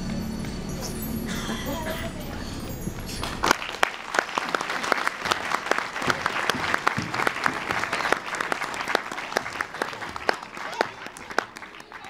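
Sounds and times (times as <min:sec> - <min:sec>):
audience applauding: 0:03.2 - 0:12.0.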